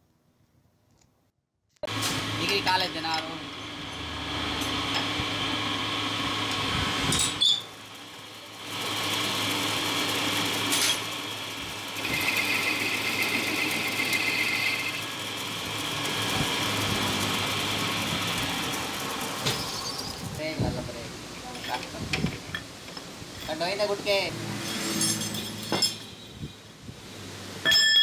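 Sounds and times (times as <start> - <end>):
high steady whine: 1.8 - 21.1
metal lathe humming: 2.2 - 20.4.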